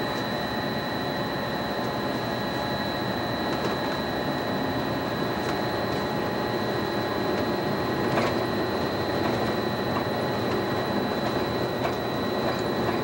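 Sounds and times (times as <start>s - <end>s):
monorail rolling noise: 4.9s - 13.0s.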